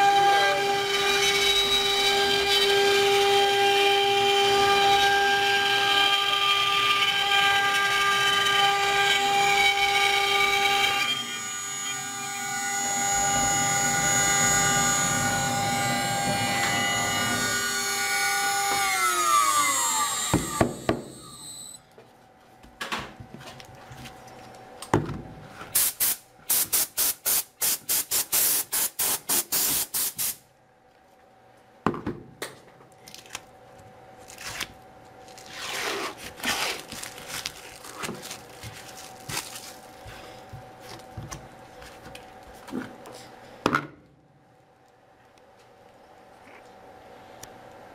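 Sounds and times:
cnc router spindle whine: 0.0s - 21.8s.

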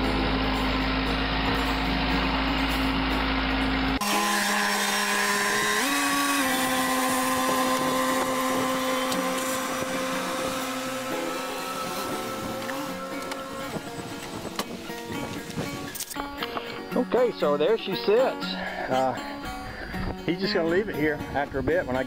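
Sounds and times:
car engine idling with whine: 0.0s - 4.2s, 4.9s - 16.6s
diesel tractor engine running: 0.0s - 17.9s.

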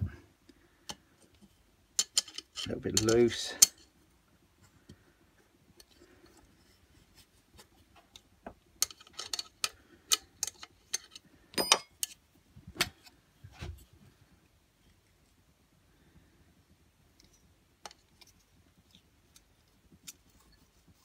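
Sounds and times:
metal tools clicking and clinking: 2.0s - 3.8s, 8.8s - 12.2s.

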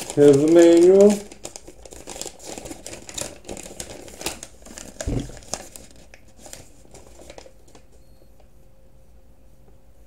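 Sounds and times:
paper crinkling and rustling: 0.0s - 8.0s
dull thump: 5.0s - 5.4s.

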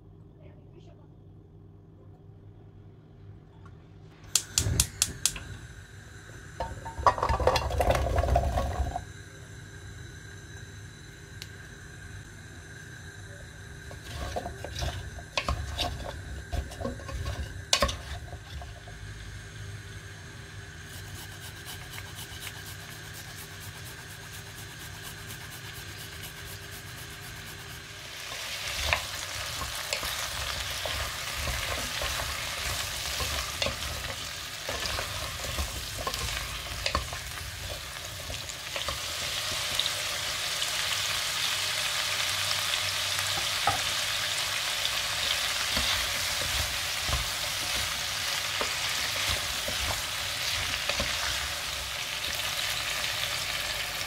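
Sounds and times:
wooden spoon scraping vegetables: 13.9s - 18.9s, 20.9s - 39.8s, 45.2s - 52.8s
ginger grated on metal grater: 20.9s - 39.0s.

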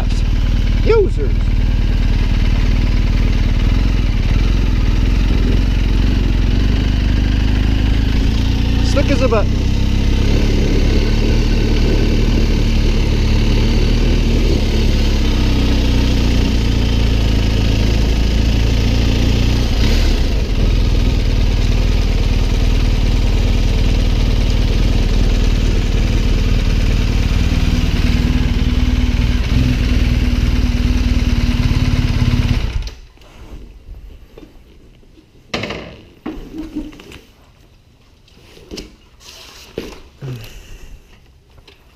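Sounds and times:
motorcycle engine running: 0.0s - 33.0s.

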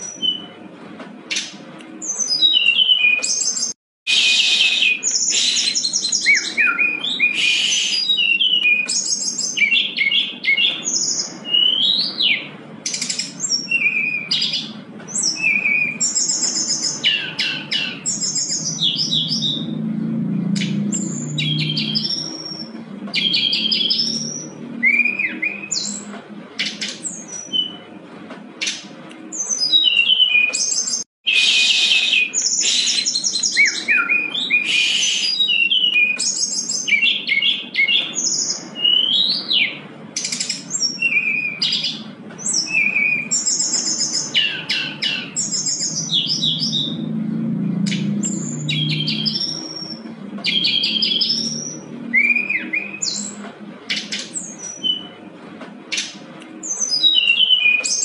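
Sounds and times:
bird singing trills and whistles: 0.0s - 0.6s, 1.3s - 19.8s, 20.4s - 27.9s, 28.6s - 55.2s, 55.9s - 58.0s.

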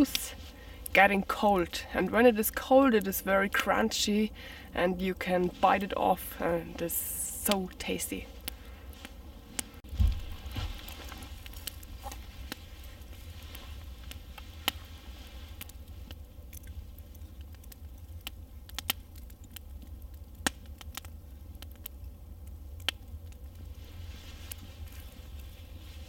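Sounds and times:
campfire crackling: 0.0s - 26.0s
low rumble of fire: 0.0s - 26.0s
sharp pops of fire: 8.4s - 22.0s.

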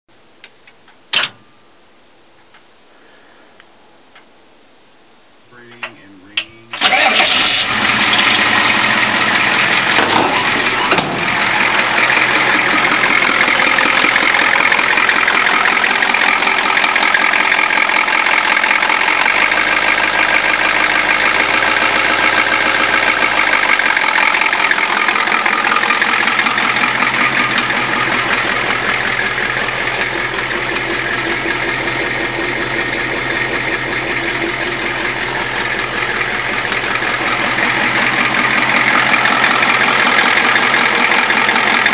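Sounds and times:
diesel engine idling with clatter: 5.5s - 41.9s.

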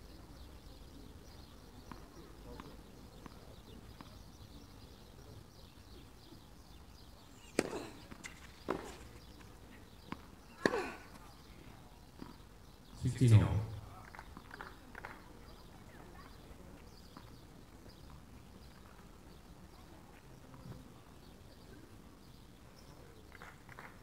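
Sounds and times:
tennis ball struck by rackets: 7.4s - 9.2s, 10.1s - 11.0s
tennis ball bouncing: 7.4s - 9.3s.

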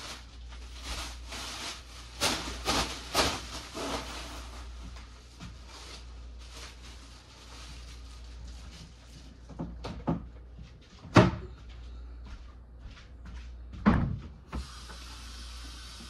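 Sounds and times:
steady hiss: 14.5s - 16.0s.

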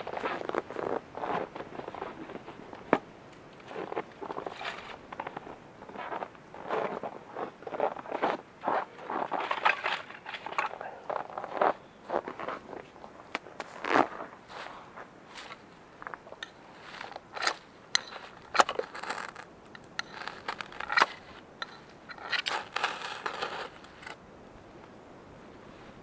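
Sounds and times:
knife scraping ferro rod: 16.4s - 24.2s.

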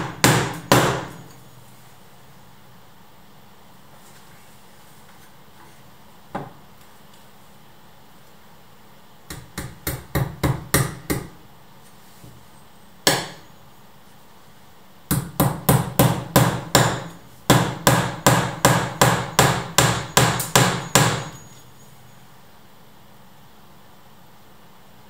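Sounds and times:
small hammer striking a nail: 0.0s - 1.2s, 15.1s - 21.4s.

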